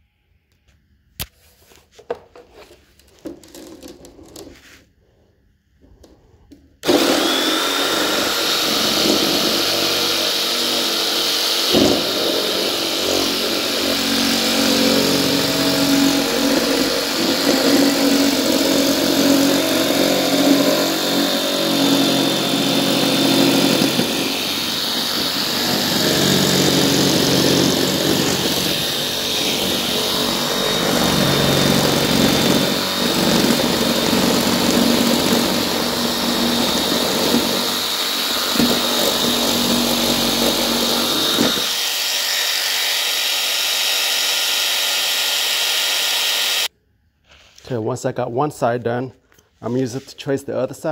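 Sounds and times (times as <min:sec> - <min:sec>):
electric jigsaw cutting wood: 0:06.8 - 0:46.7.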